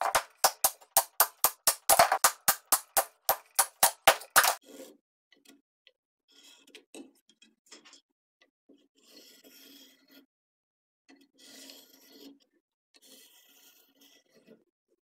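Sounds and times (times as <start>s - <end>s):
hammer blows on hatchet head: 0.0s - 4.6s.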